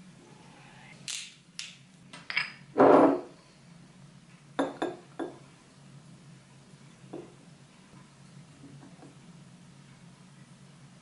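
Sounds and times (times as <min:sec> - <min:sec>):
glass bottles clinking: 0:02.3 - 0:03.3, 0:04.6 - 0:05.4.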